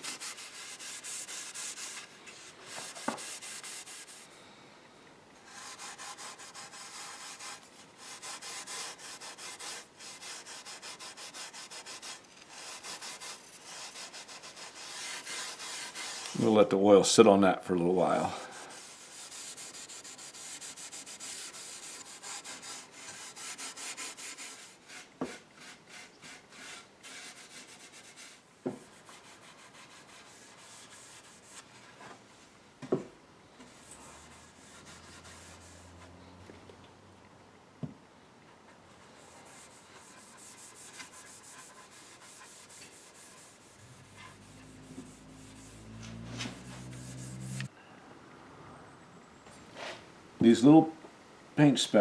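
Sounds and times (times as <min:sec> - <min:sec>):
cloth rag rubbing wood: 0:00.0 - 0:04.3, 0:05.4 - 0:16.7, 0:18.0 - 0:32.2, 0:33.6 - 0:36.2, 0:39.0 - 0:47.7.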